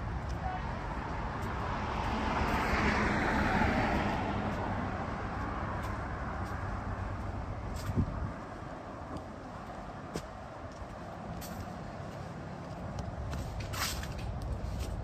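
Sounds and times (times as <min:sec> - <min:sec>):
low traffic rumble: 0:00.0 - 0:15.0
motor vehicle passing by: 0:00.9 - 0:08.3.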